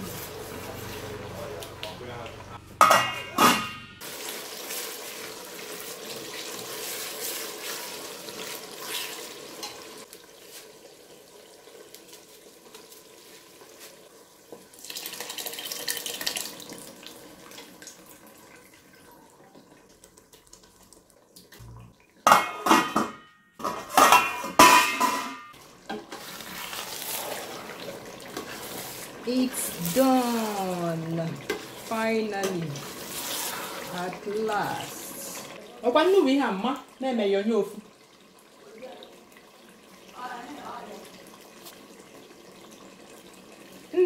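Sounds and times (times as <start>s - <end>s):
metal pots and spoon clattering: 2.8s - 4.0s, 9.5s - 10.0s, 22.2s - 26.3s
liquid poured into pot: 4.0s - 22.8s, 23.6s - 35.9s.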